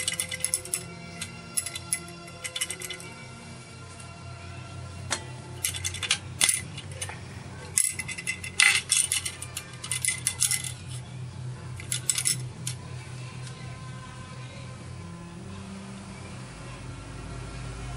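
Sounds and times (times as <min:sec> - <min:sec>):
spoons clinking against shell: 0:00.0 - 0:03.1, 0:05.1 - 0:11.0, 0:11.8 - 0:12.8
steady low hum: 0:00.0 - 0:17.9.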